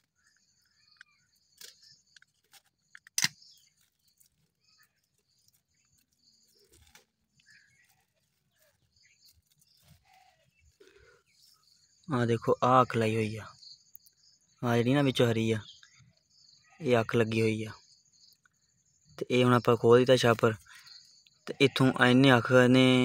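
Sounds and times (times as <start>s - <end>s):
sharp click: 3.0s - 3.5s
crickets chirring: 8.9s - 23.0s.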